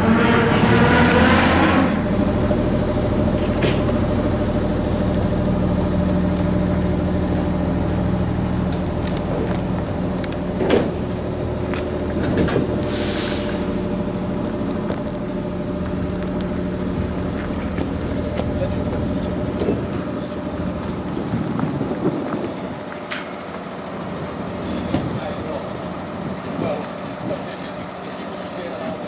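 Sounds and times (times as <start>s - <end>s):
car engine idling: 1.1s - 29.0s
short hiss: 12.8s - 13.8s.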